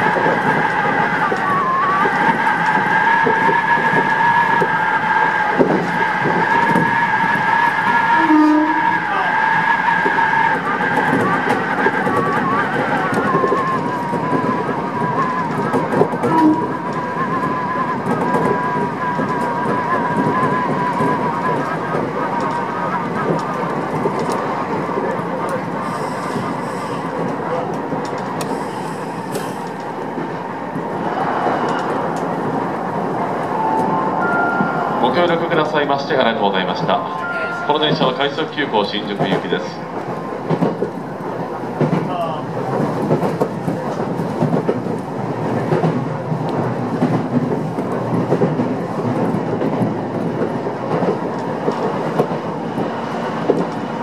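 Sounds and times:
train wheels rumbling: 0.0 - 54.0
faint rail clicks: 9.9 - 34.8, 38.8 - 54.0
high wheel flange squeal: 25.8 - 27.2
brief low tone: 37.1 - 37.8.

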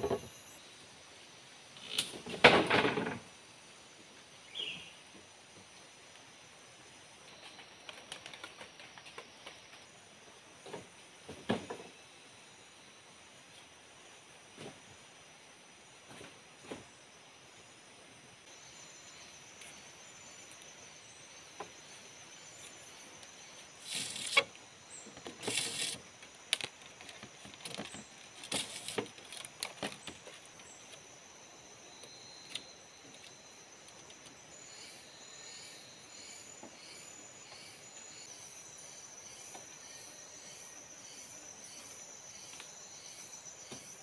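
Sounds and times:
forest insects droning: 0.0 - 44.0
bamboo poles rustling and scraping: 1.7 - 3.4, 7.3 - 9.9, 16.0 - 17.1, 21.6 - 31.2.

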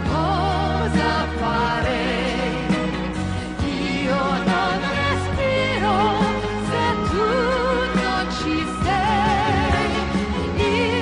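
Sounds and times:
band playing pop ballad: 0.0 - 11.0
woman singing with vibrato: 3.6 - 11.0.

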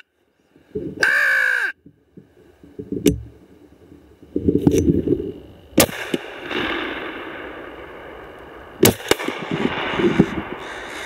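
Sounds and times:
shotgun firing: 5.8 - 7.7, 8.8 - 10.1.

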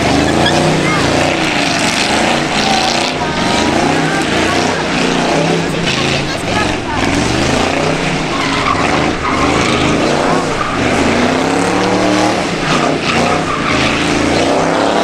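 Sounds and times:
car engine revving: 0.0 - 15.0
tyres squealing on asphalt: 0.0 - 15.0.

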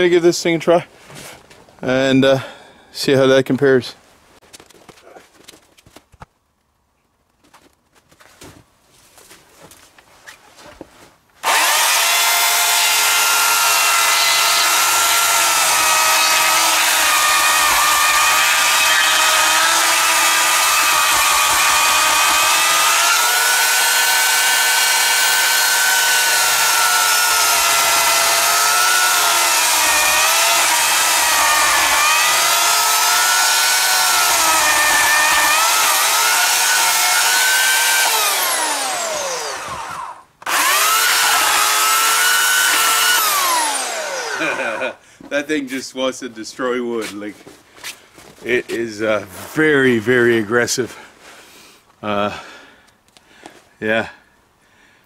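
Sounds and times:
chainsaw motor spinning down: 11.4 - 45.0
electric chainsaw cutting log: 11.4 - 45.0.

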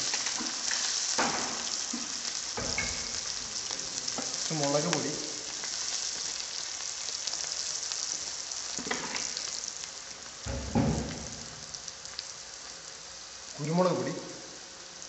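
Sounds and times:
oil sizzling: 0.0 - 15.0
low thud: 10.5 - 11.4.

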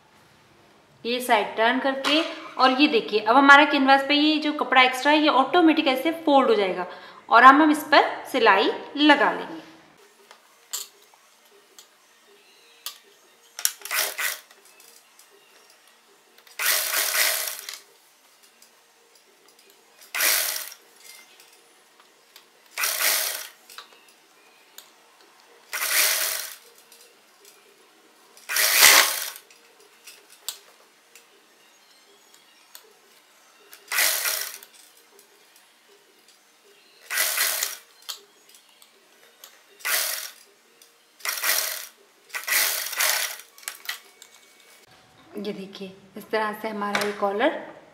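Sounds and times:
sewing machine stitching: 13.7 - 14.5, 16.5 - 17.8, 20.1 - 20.8, 22.8 - 23.6, 25.7 - 26.6, 28.5 - 29.4, 33.8 - 34.7, 37.1 - 37.8, 39.8 - 40.4, 41.2 - 43.8.

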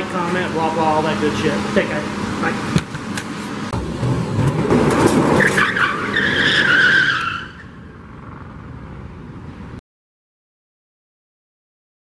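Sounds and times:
car engine revving: 0.4 - 9.2
tyres squealing: 4.4 - 8.0.

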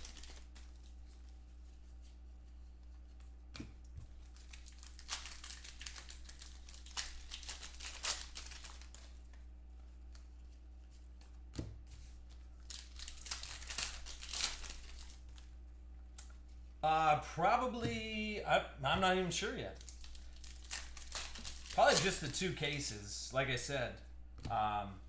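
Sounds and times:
foil wrapper crinkling and tearing: 0.0 - 1.3, 4.1 - 9.4, 12.4 - 15.5, 19.7 - 22.9
cards crackling: 0.0 - 1.4, 4.1 - 9.4, 12.0 - 16.4, 19.0 - 23.0
low electrical hum: 0.0 - 25.0.

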